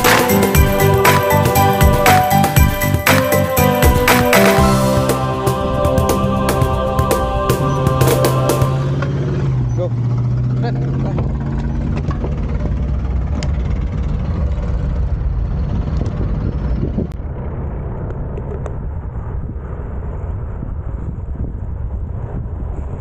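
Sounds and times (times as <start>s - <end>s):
low rumble of riding: 5.9s - 23.0s
wind buffeting microphone: 11.3s - 23.0s.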